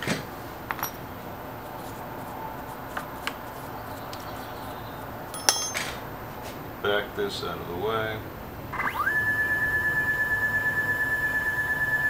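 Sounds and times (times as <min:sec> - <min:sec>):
sharp metallic clink: 0:05.3 - 0:06.0.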